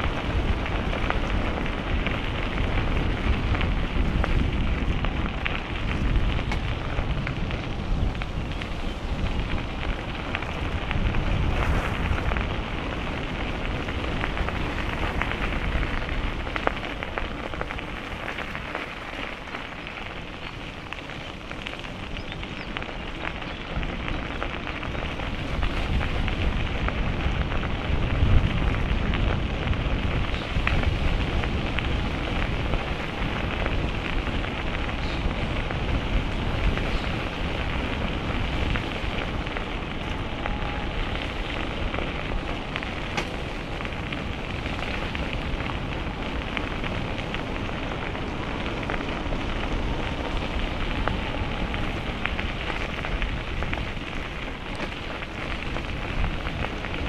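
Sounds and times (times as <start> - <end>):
bicycle tyres rolling: 0.0 - 57.0
bike clicks: 0.0 - 57.0
wind buffeting microphone: 0.0 - 57.0.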